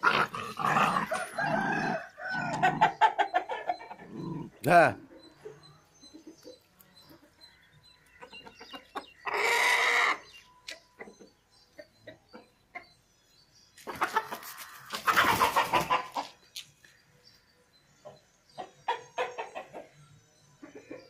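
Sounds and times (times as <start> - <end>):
loud drawn-out animal call: 9.2 - 10.3.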